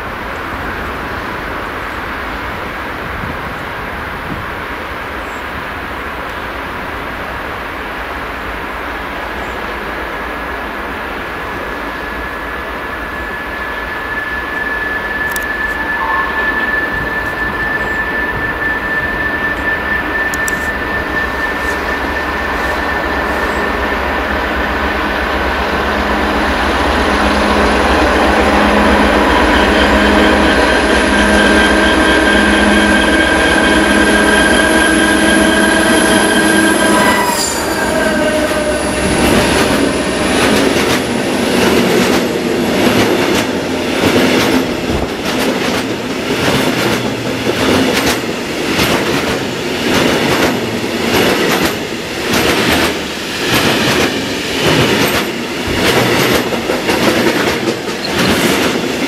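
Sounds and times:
diesel locomotive engine passing: 0.0 - 59.0
train wheels clattering on rails: 39.0 - 59.0.

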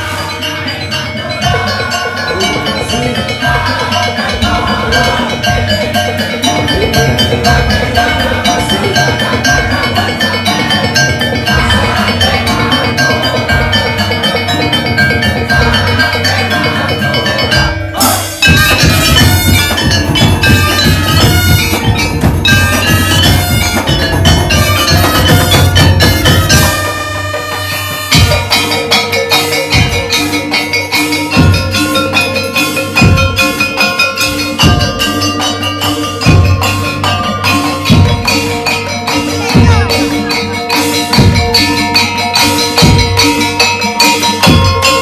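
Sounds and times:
trumpets: 0.0 - 14.3, 15.7 - 30.4
barrel drums beating: 0.0 - 45.0.

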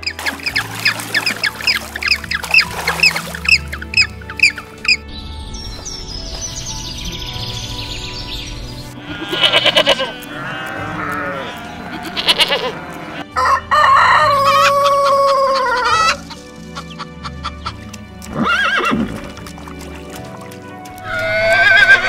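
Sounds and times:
background music: 0.0 - 22.0
goat bleating: 9.0 - 13.3
rooster crowing: 13.3 - 16.0.

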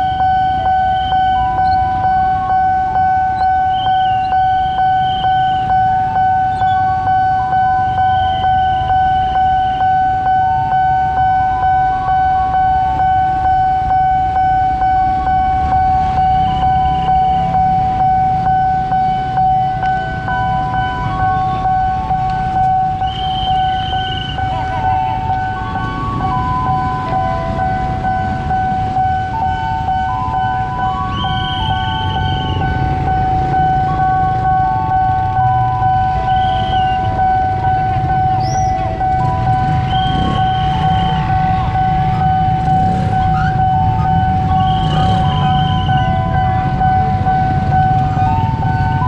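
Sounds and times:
level-crossing warning bell ringing: 0.0 - 49.0
motorcycle engines idling: 15.5 - 49.0.

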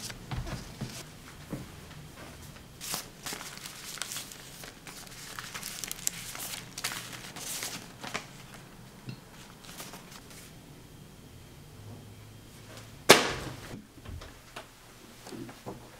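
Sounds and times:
paper envelopes rustling: 0.0 - 1.1, 2.8 - 10.5.

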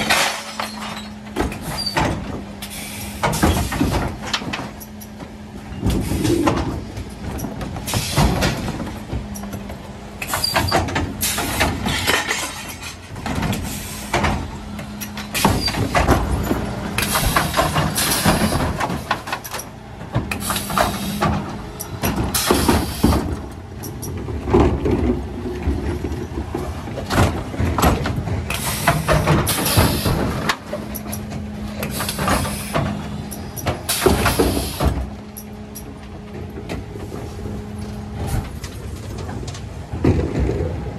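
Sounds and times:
rubbish dropping into hopper: 0.0 - 2.5, 24.1 - 33.1, 36.1 - 40.9
plastic bins clattering and banging: 0.0 - 2.6, 3.2 - 35.3, 35.9 - 40.9.

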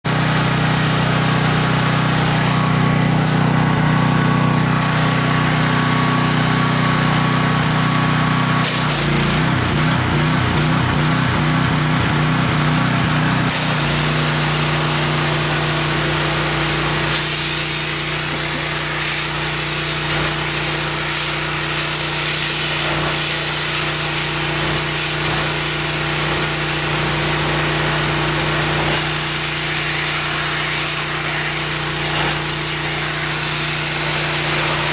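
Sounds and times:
pressure washer motor hum: 0.0 - 34.9
water jet hissing on wood: 8.6 - 9.2, 13.5 - 34.9.

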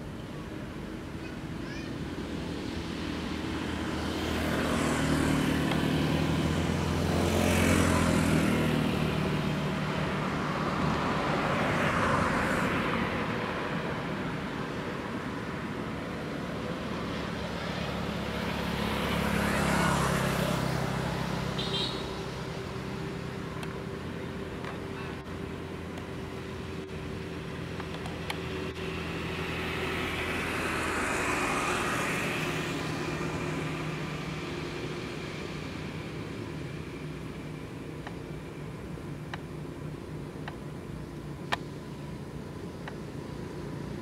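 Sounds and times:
traffic hum: 0.0 - 44.0
vehicles passing close by: 0.0 - 44.0.

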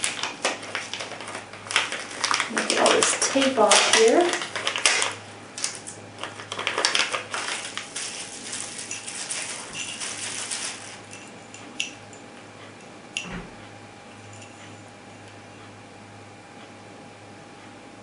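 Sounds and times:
plastic bag and bubble wrap crinkling: 0.0 - 11.2.

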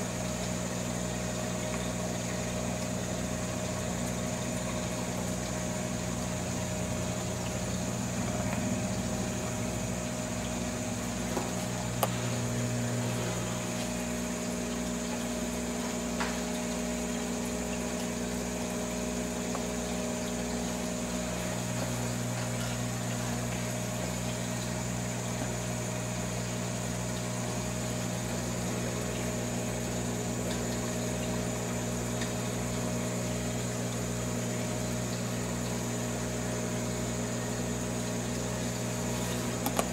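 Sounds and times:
aquarium pump humming: 0.0 - 39.9
faint watery hiss: 11.0 - 14.7.

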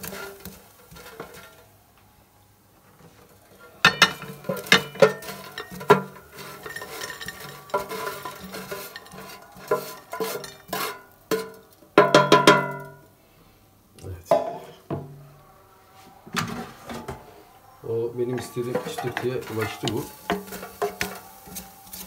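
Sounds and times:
wooden spoon scraping metal basket: 0.0 - 1.7, 2.9 - 12.8, 16.3 - 22.0
food clattering onto plate: 3.8 - 13.0, 18.4 - 22.0.

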